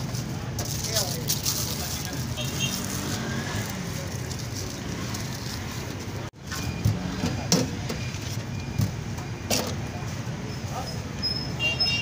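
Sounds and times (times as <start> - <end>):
traffic: 0.0 - 12.0.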